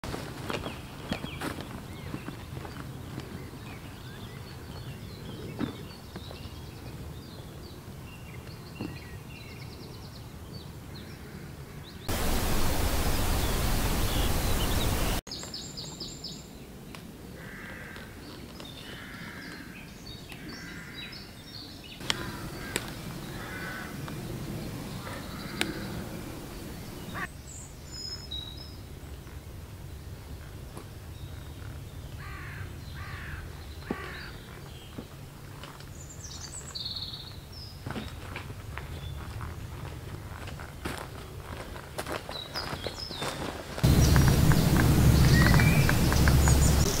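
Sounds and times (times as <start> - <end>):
small birds singing: 0.5 - 29.4, 35.7 - 39.4, 42.3 - 47.0
loud rushing noise: 12.1 - 15.2, 22.0 - 27.3, 43.8 - 47.0
crows cawing: 17.4 - 18.2, 18.8 - 19.7, 20.4 - 21.1, 22.0 - 27.3, 32.2 - 34.4.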